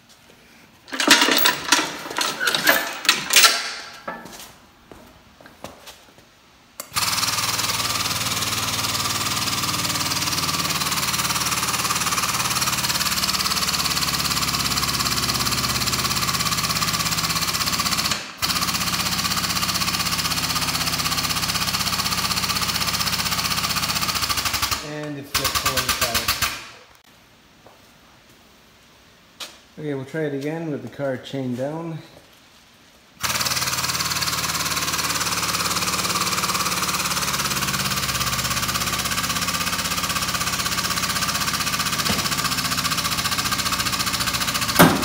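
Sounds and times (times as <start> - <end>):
chains and metal clanking: 0.9 - 4.4.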